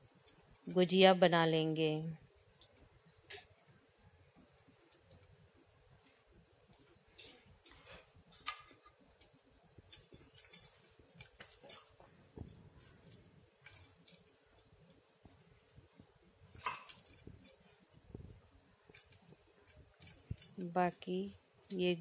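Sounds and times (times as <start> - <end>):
clinks of bangles: 0.0 - 1.3, 6.0 - 18.1, 18.8 - 22.0.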